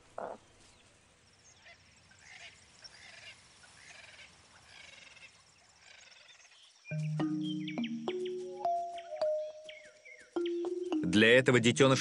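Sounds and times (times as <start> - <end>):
faint high chirps: 6.9 - 11.2.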